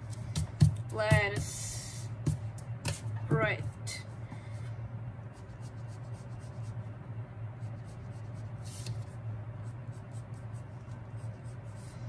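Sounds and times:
steady low hum: 0:00.0 - 0:12.0
pencil scratching on paper: 0:05.3 - 0:06.8, 0:07.6 - 0:12.0.

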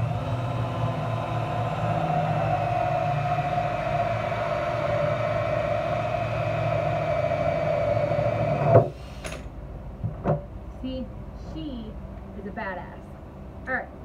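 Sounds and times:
drill motor whine: 0:00.0 - 0:08.9.

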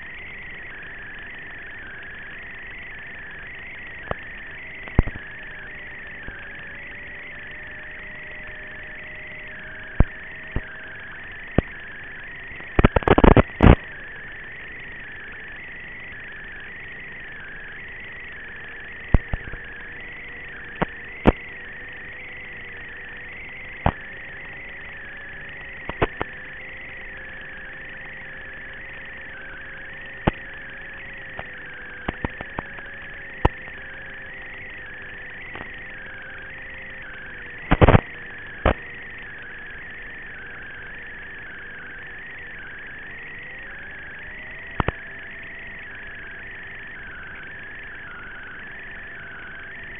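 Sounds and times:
electric motor and propeller drone: 0:00.0 - 0:49.9
sharp clicks and crackles: 0:00.2 - 0:14.0, 0:19.0 - 0:21.6, 0:22.7 - 0:39.8, 0:43.7 - 0:45.4.

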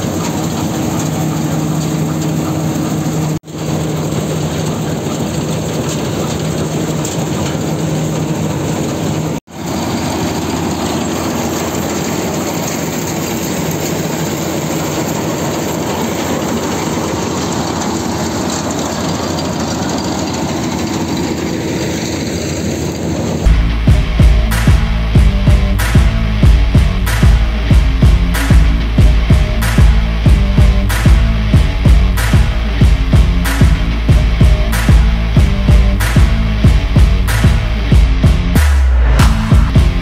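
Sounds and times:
combine harvester running: 0:00.0 - 0:40.0.

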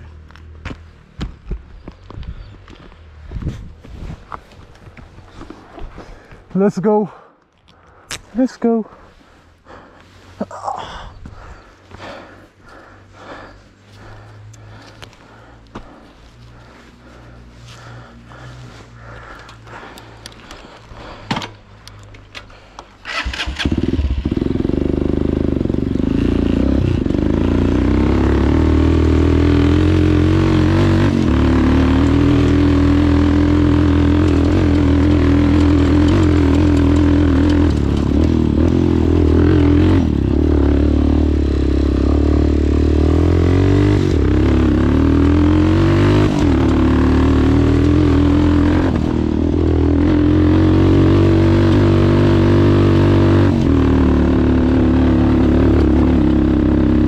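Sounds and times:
motorcycle engine running: 0:08.9 - 0:22.0, 0:23.0 - 0:57.0
starter clicks: 0:21.3 - 0:23.7.

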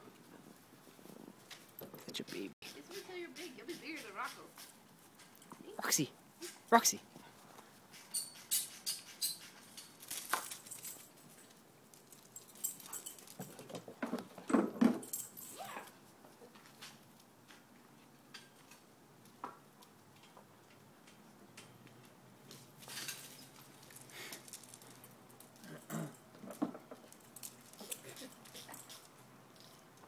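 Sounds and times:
dogs scuffling: 0:06.6 - 0:15.9.

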